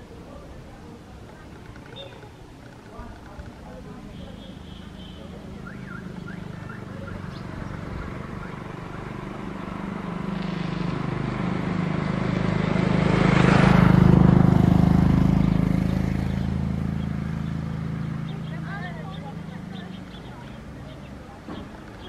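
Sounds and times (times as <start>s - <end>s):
vehicle engine passing by: 5.2s - 22.0s.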